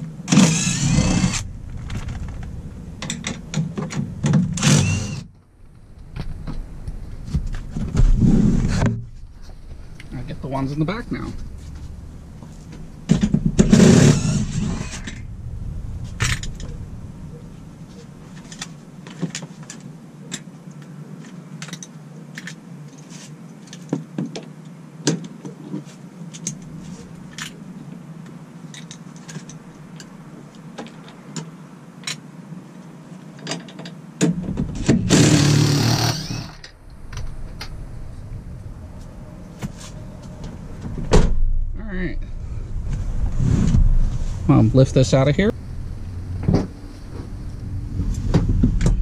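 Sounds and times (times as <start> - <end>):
impact driver bursts: 0.3 - 1.4, 4.5 - 5.3, 13.6 - 15.0, 34.8 - 36.6.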